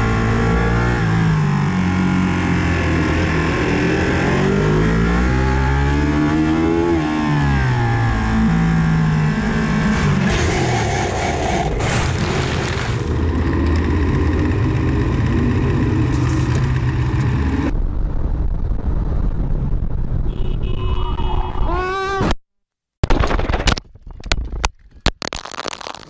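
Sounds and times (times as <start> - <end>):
racing motorcycle engine: 0.0 - 17.7
motorcycle riding on road: 0.0 - 21.8.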